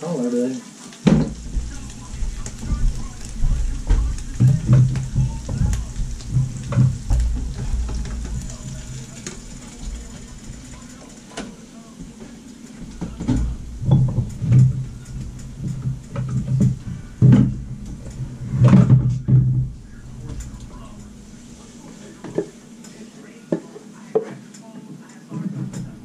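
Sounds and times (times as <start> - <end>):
muffled talking: 0.0 - 26.0
kitchen knocks and clatters: 1.0 - 24.4, 25.4 - 26.0.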